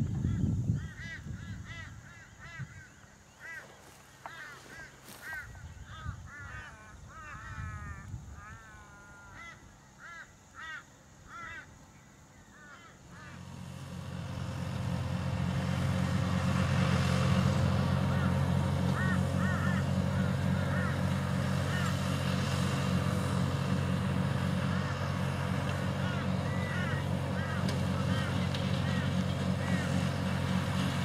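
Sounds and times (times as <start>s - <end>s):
bird calling: 0.2s - 13.5s, 17.8s - 30.5s
tractor engine running: 13.1s - 31.0s.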